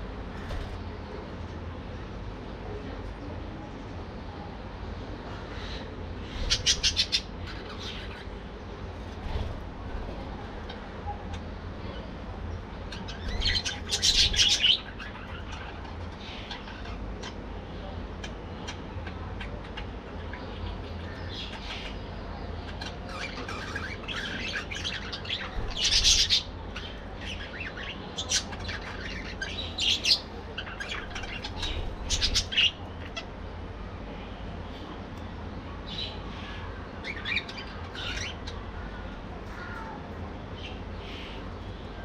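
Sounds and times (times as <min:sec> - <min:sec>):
budgerigars chirping and chattering: 0:05.5 - 0:08.4, 0:12.8 - 0:33.4, 0:35.9 - 0:39.8.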